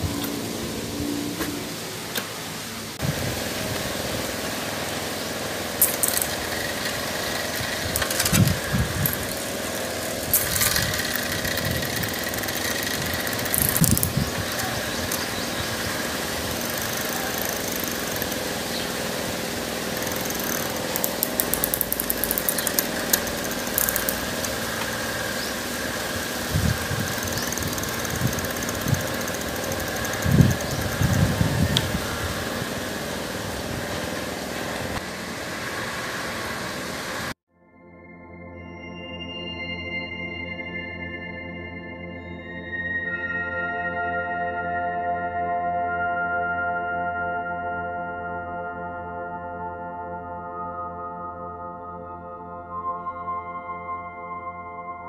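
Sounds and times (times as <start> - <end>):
bicycle chain whirring over sprockets: 5.6 - 33.0
freewheel ratchet ticking: 5.8 - 19.0, 19.8 - 32.0.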